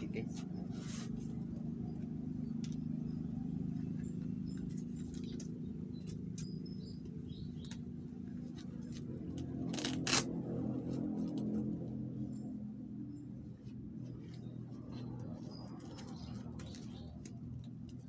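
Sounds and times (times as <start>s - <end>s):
steady low hum: 0.0s - 18.0s
shoelace clicks and rustles: 7.5s - 10.3s, 14.2s - 18.0s.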